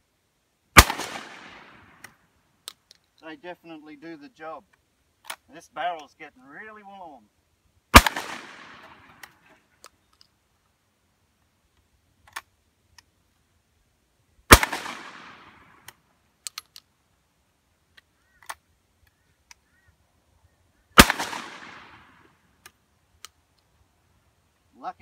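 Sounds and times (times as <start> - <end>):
shotgun shots with echo: 0.8 - 2.0, 7.9 - 9.2, 14.5 - 15.6, 21.0 - 22.2
shotgun action metallic clicks: 1.0 - 3.2, 8.0 - 10.4, 11.7 - 13.1, 14.6 - 17.0, 22.6 - 23.7.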